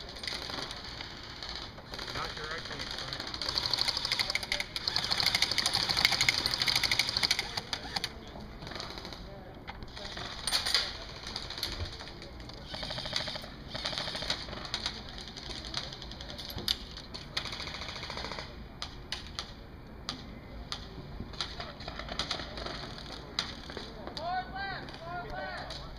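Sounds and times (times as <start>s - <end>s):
airsoft guns firing bursts: 0.0s - 9.3s, 9.9s - 16.4s, 17.3s - 18.6s.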